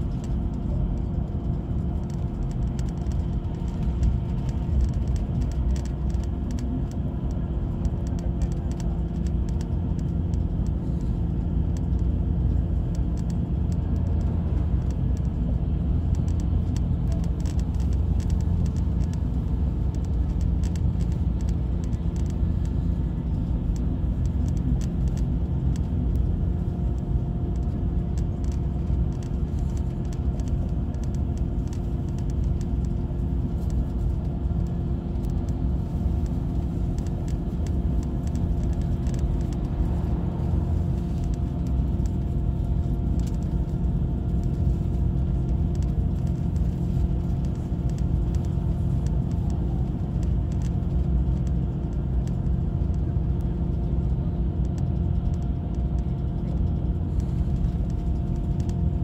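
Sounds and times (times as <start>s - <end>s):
bus engine and road rumble: 0.0s - 59.0s.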